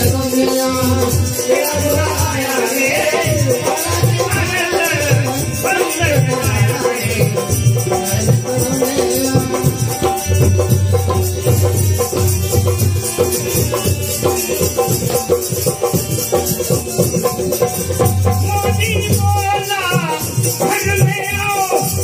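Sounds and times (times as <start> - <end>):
person singing into microphone: 0.0 - 11.1
hand drums beating: 0.0 - 22.0
harmonium notes: 0.0 - 22.0.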